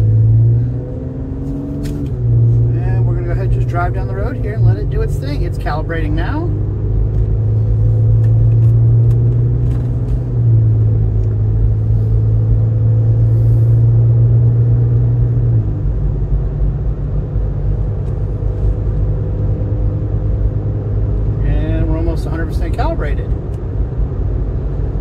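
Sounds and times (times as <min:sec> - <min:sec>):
car engine and road drone: 0:00.0 - 0:25.0
deep hum: 0:00.0 - 0:25.0.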